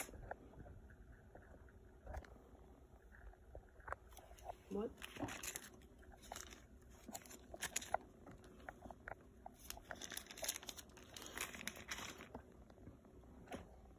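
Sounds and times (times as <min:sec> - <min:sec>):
plastic bag crinkling: 0:04.4 - 0:08.1, 0:09.6 - 0:12.5.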